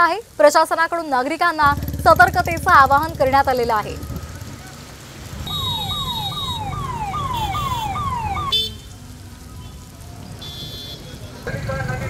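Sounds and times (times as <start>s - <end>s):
low rumble: 1.6s - 6.0s
electronic siren wailing: 5.4s - 8.6s.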